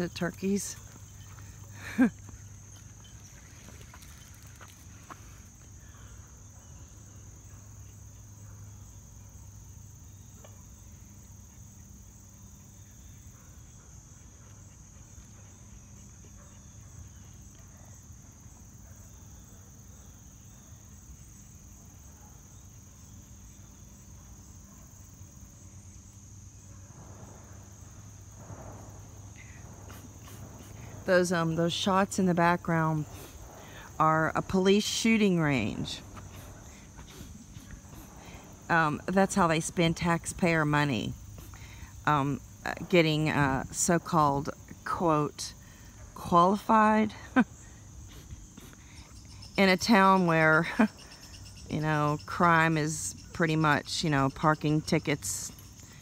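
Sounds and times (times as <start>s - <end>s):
insects chirping: 0.0s - 56.0s
low hum: 26.6s - 45.3s.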